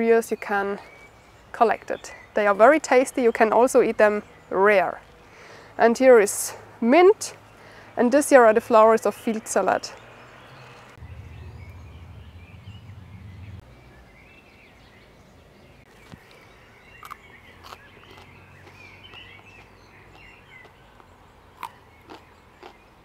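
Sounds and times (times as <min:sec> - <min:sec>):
small birds chirping: 0:00.0 - 0:23.0
low hum: 0:10.9 - 0:14.3
crunching of chewing plant stalk: 0:17.0 - 0:23.0.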